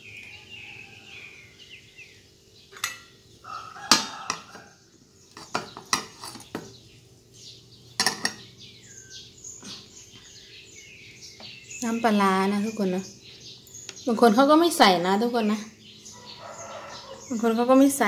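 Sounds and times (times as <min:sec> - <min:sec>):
small birds chirping: 0:00.0 - 0:18.0
metal spoon clinking against pot: 0:08.0 - 0:08.5.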